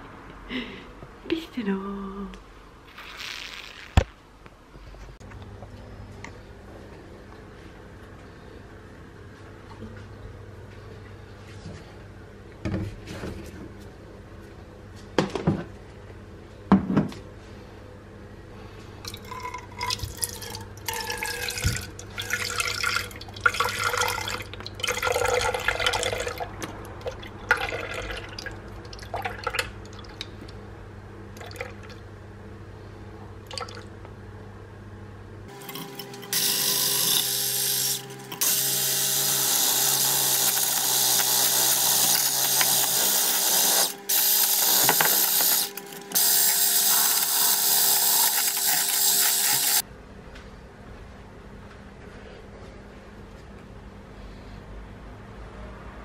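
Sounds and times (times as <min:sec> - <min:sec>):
liquid pouring into plastic jug: 0:19.1 - 0:30.3
electric hand blender whirring: 0:35.5 - 0:49.8.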